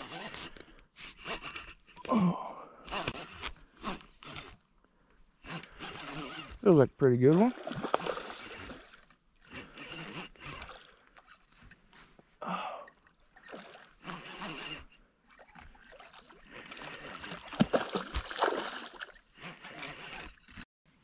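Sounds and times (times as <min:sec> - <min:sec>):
water splashing: 0:07.2 - 0:09.0, 0:12.9 - 0:14.0, 0:15.4 - 0:19.2.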